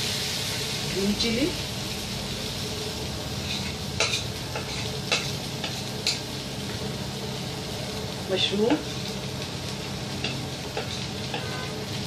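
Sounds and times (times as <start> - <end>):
vegetables sizzling in frying pan: 0.0 - 12.0
spatula scraping and knocking pan: 3.5 - 6.2, 10.2 - 11.9.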